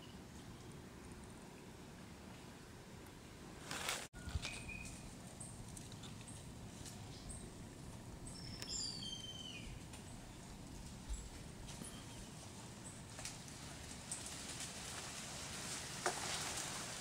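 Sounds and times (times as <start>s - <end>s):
low steady hiss: 0.0s - 17.0s
bird whistling: 8.4s - 9.7s.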